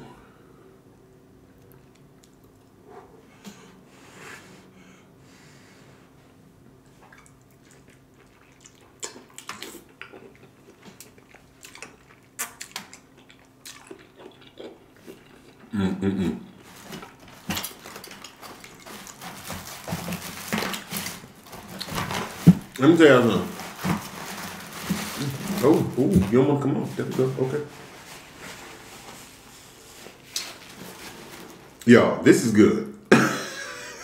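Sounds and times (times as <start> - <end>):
wet chewing and lip-smacking: 1.6 - 2.8, 7.0 - 15.7, 16.5 - 19.2.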